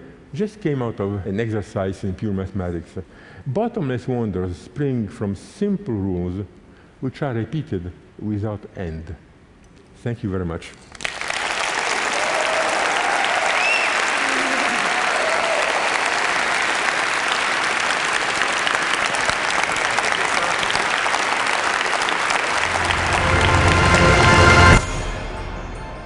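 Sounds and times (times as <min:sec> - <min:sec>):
large audience applauding: 0:10.9 - 0:24.9
low music: 0:22.5 - 0:26.0.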